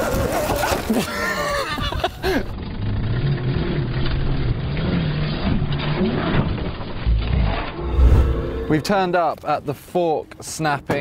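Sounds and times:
tyres tearing through dirt: 2.6 - 9.0.

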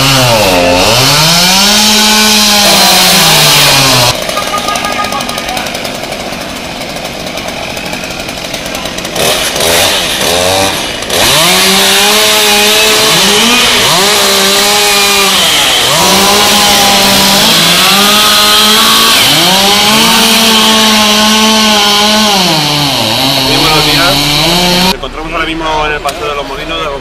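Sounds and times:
chainsaw engine revving: 0.0 - 25.0.

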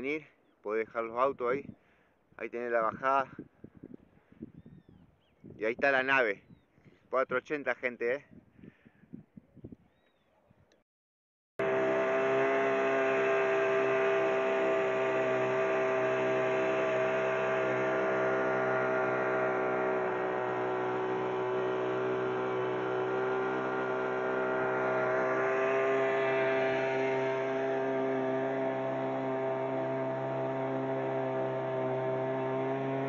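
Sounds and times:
outboard motor running: 11.6 - 33.0.

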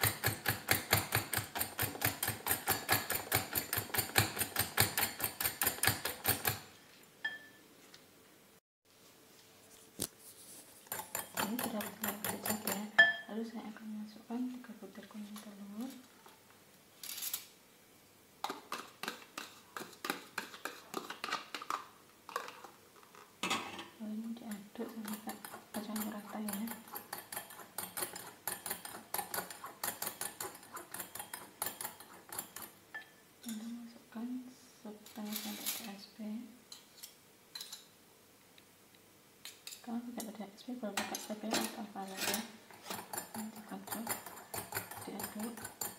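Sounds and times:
whisk clicking against glass bowl: 0.0 - 6.6, 10.9 - 13.2, 25.0 - 33.1, 42.9 - 45.9.

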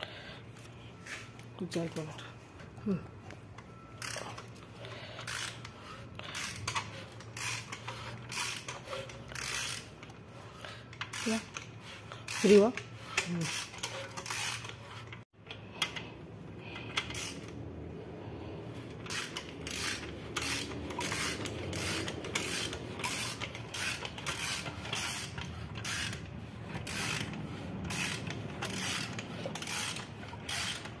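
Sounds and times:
ratchet wrench clicking: 4.0 - 10.2, 10.9 - 16.0, 16.7 - 17.6, 18.8 - 31.0.

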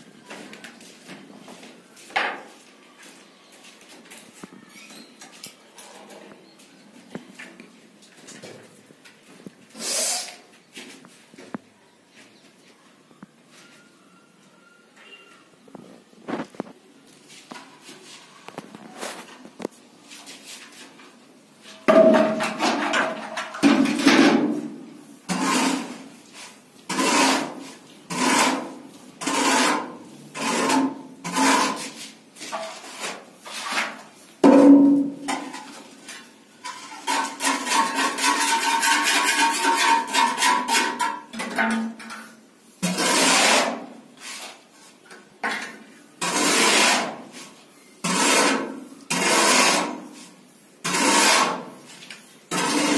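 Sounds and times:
scraping against plastered wall: 21.6 - 52.9.

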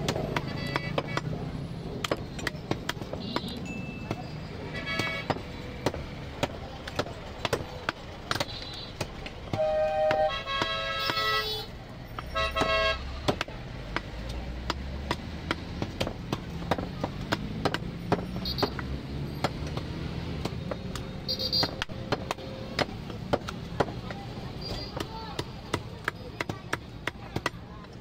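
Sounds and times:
cleaver chopping on wooden block: 0.0 - 1.4, 4.8 - 11.4, 12.2 - 21.0, 21.6 - 24.1, 24.9 - 27.6
low traffic rumble: 0.0 - 28.0
vehicle horn toots: 0.5 - 1.2, 4.7 - 5.3, 9.5 - 11.7, 12.3 - 13.0, 21.3 - 21.7.

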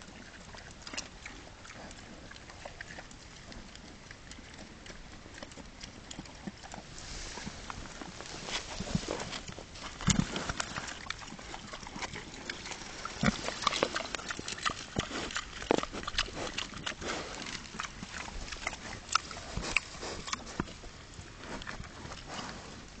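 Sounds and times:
pigs crunching and chewing: 0.0 - 23.0
pig grunts: 10.0 - 20.8.

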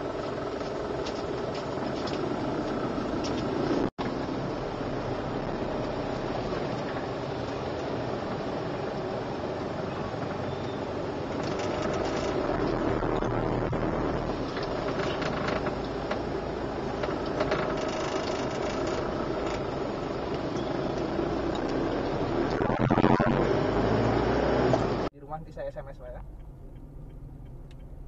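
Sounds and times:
motorcycle engines buzzing: 0.0 - 16.2
car running noise: 0.0 - 28.0.

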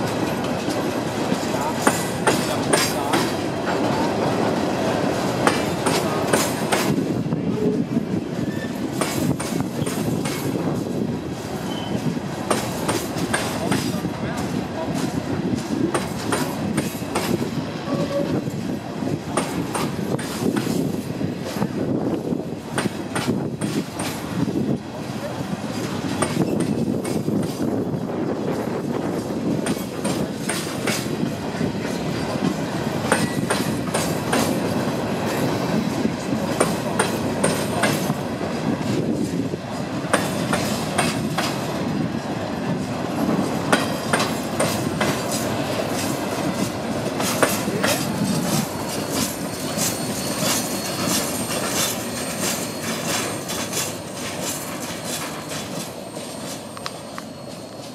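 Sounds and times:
train wheels clicking over rail joints: 0.0 - 57.9
wheel flange squeals: 8.4 - 8.8, 11.5 - 12.1, 47.9 - 57.9.

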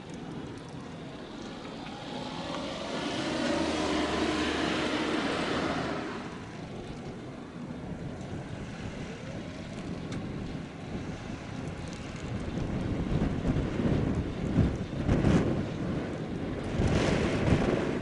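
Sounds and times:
vehicle passing by: 0.0 - 12.2
outdoor background noise: 0.0 - 18.0.

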